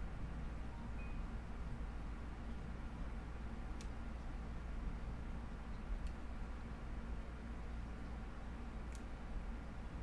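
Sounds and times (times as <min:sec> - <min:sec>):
low hum and hiss: 0:00.0 - 0:10.0
faint click: 0:03.8 - 0:04.0, 0:08.9 - 0:09.1.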